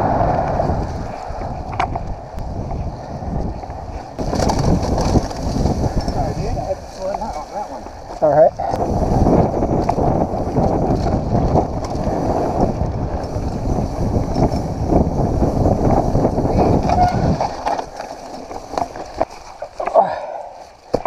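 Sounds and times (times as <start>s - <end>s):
wind on microphone: 0.0s - 19.3s
bike tyres rumbling on dirt: 0.0s - 21.0s.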